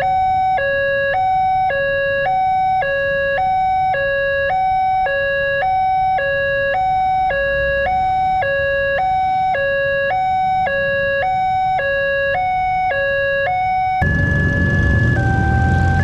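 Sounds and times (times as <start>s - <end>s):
two-tone crossing alarm: 0.0s - 16.0s
loud noisy steady tone: 14.0s - 16.0s.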